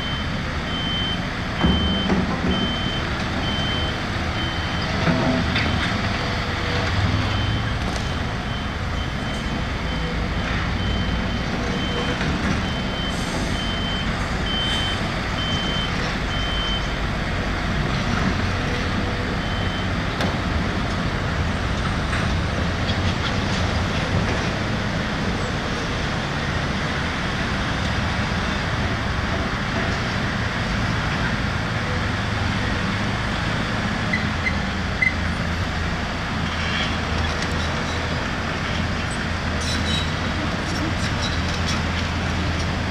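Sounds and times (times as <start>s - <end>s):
reversing alarm beeping: 0.0s - 5.8s, 7.1s - 17.0s, 19.4s - 20.0s
diesel machinery engine rumble: 0.0s - 42.9s.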